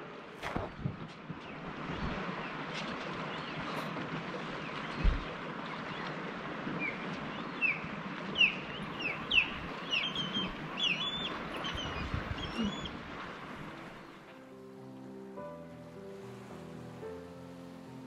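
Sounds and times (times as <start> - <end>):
wind and water hiss: 0.0 - 18.0
gulls calling: 1.4 - 14.3.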